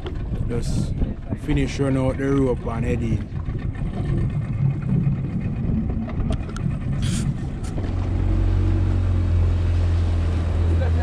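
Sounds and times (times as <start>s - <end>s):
outboard motor drone: 0.0s - 11.0s.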